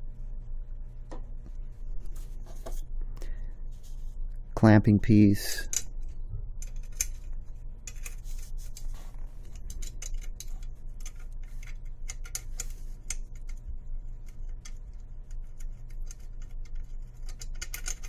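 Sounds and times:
steady low hum: 0.0s - 18.0s
small metal parts clicking: 6.6s - 8.8s, 9.5s - 13.6s, 14.2s - 18.0s.

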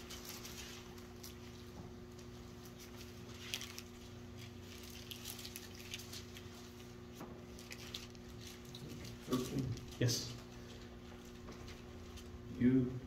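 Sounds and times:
faint clicks and rustles: 0.0s - 12.5s.

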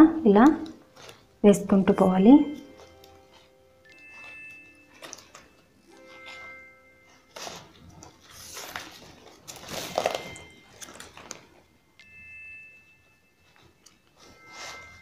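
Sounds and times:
plastic wire rustling and scraping: 2.6s - 11.8s.

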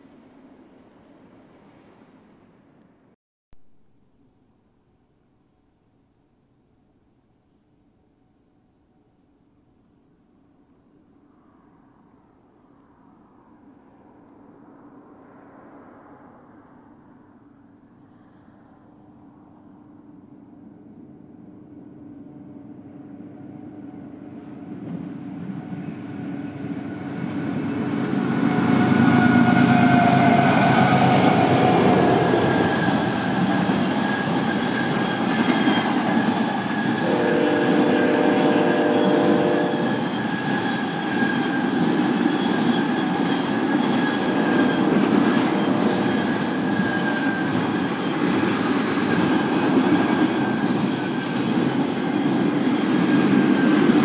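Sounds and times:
freight train rumbling past: 0.0s - 2.8s, 10.9s - 54.0s
train horn chord: 28.2s - 33.1s, 37.0s - 40.2s.

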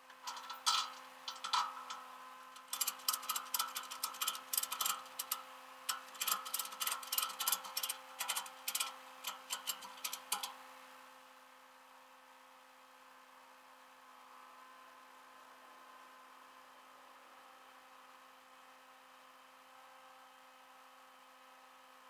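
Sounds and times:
faint steady hum: 0.0s - 22.0s
light clicking and rattling: 0.2s - 2.0s, 2.6s - 10.6s.

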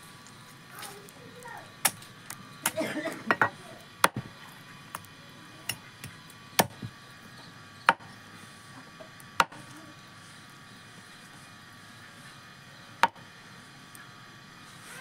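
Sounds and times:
knife chopping on wooden block: 6.6s - 6.9s.

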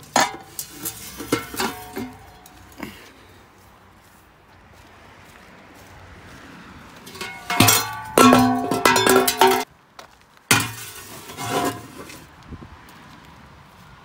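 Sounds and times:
metal pipes clanking: 0.0s - 3.1s, 7.1s - 9.7s, 10.5s - 12.2s.

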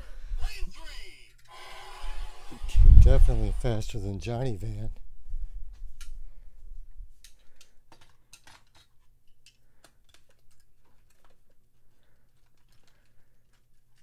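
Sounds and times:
toy cars clicking and clacking: 7.2s - 14.0s.

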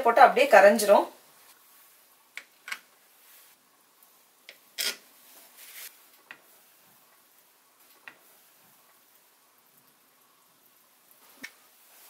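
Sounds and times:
knife scraping against glass: 4.8s - 5.0s.

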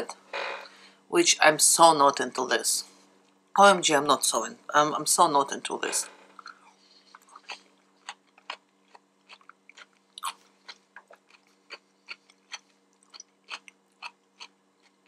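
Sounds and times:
person chewing crunchy salad: 6.4s - 15.0s.

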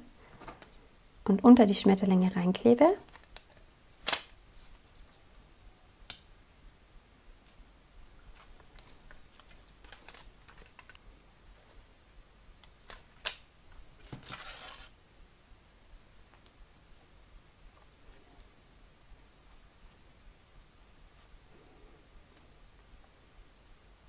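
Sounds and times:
paper rustle: 8.2s - 11.9s, 12.8s - 14.9s
paper handling: 8.3s - 11.8s, 12.8s - 14.9s.

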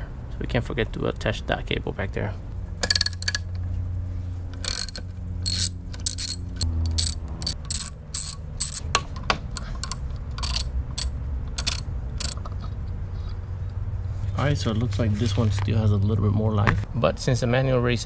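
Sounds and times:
socket ratchet clicking: 2.8s - 3.5s, 4.6s - 12.6s.

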